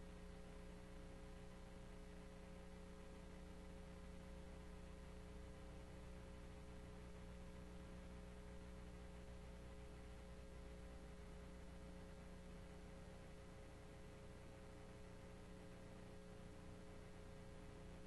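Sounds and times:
low electrical hum with hiss: 0:00.0 - 0:18.0.

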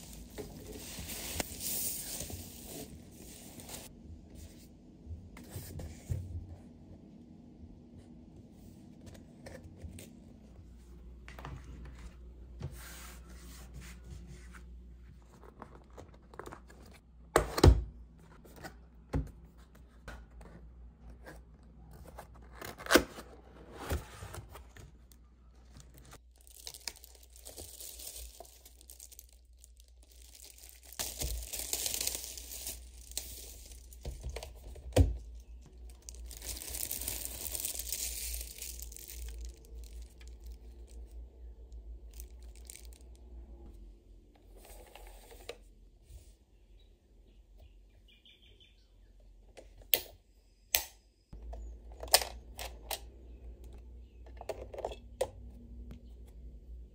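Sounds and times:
plastic wrap crinkling and tearing: 0:25.9 - 0:34.1, 0:35.7 - 0:41.2, 0:42.1 - 0:43.2.

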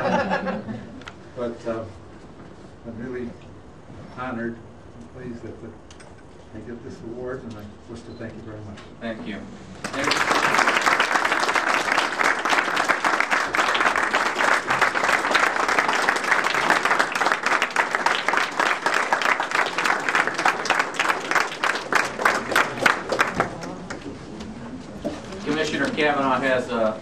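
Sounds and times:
audience applauding: 0:09.8 - 0:24.1.

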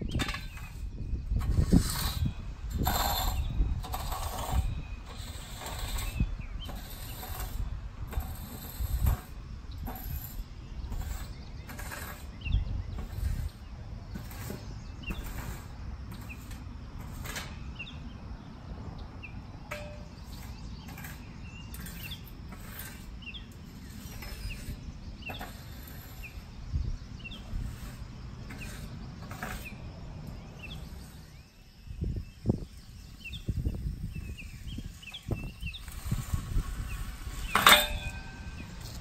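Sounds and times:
small birds chirping: 0:00.0 - 0:39.0
rake scraping across turf: 0:00.1 - 0:18.0, 0:19.8 - 0:31.6, 0:33.2 - 0:39.0.

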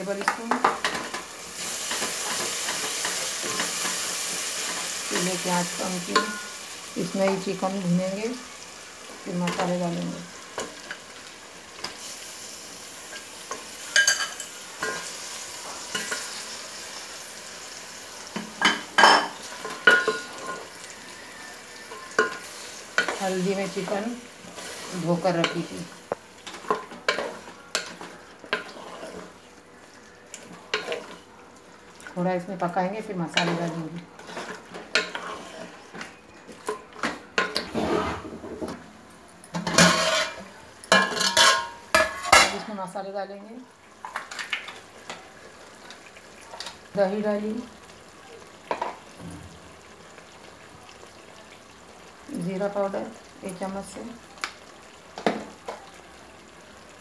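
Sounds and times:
chicken sizzling in hot oil: 0:00.0 - 0:38.6, 0:39.6 - 0:57.0
wooden spatula scraping a pot: 0:26.4 - 0:29.4, 0:33.3 - 0:36.0, 0:39.7 - 0:40.5.

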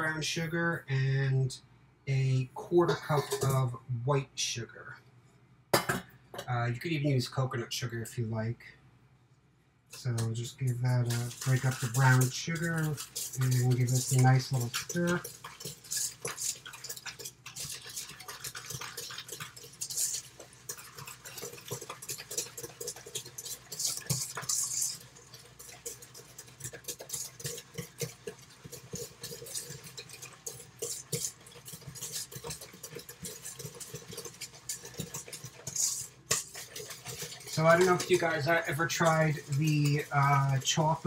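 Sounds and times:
utensil scraping metal bowl: 0:02.7 - 0:03.7, 0:10.0 - 0:41.0.

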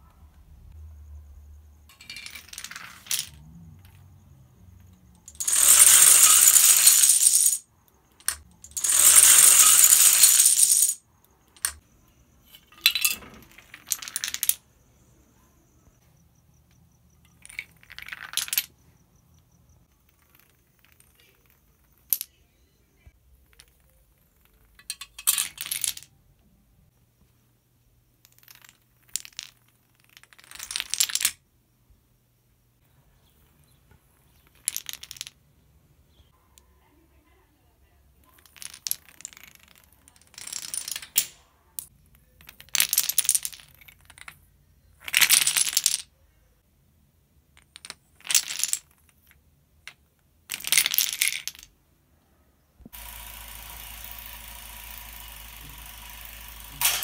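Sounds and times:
dominoes clattering on tile: 0:01.9 - 0:04.0, 0:05.1 - 0:07.6, 0:08.2 - 0:11.0, 0:11.6 - 0:11.8, 0:12.5 - 0:14.6, 0:17.3 - 0:18.7, 0:20.0 - 0:22.4, 0:23.4 - 0:26.1, 0:28.2 - 0:31.4, 0:34.3 - 0:35.4, 0:38.3 - 0:44.4, 0:45.0 - 0:46.1, 0:47.6 - 0:51.7, 0:56.7 - 0:57.0.

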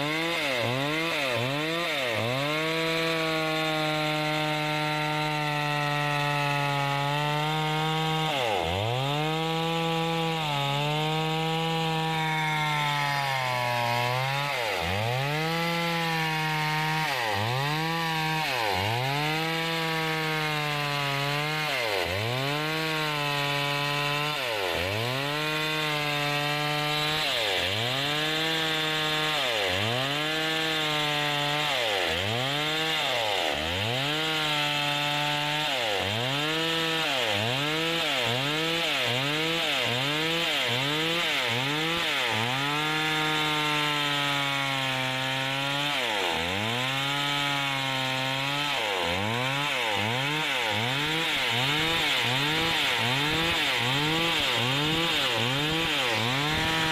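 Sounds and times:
chainsaw cutting wood: 0:00.0 - 0:56.9.

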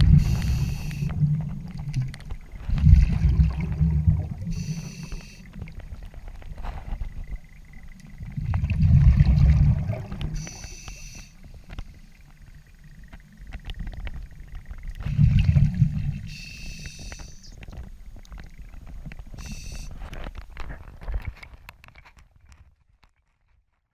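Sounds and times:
breath hissing through regulator: 0:00.0 - 0:01.1, 0:04.4 - 0:05.5, 0:10.3 - 0:11.4, 0:16.3 - 0:17.5, 0:19.4 - 0:20.0
exhaled bubbles rumbling underwater: 0:00.0 - 0:19.9.

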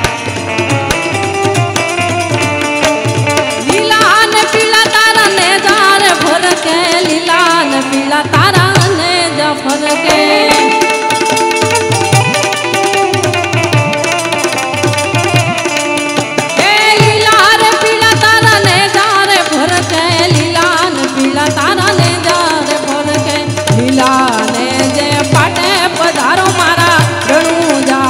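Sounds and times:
hand drum beat: 0:00.0 - 0:28.0
hand percussion: 0:00.0 - 0:28.0
harmonium chords: 0:00.0 - 0:28.0
woman singing: 0:03.4 - 0:12.7, 0:16.4 - 0:28.0.

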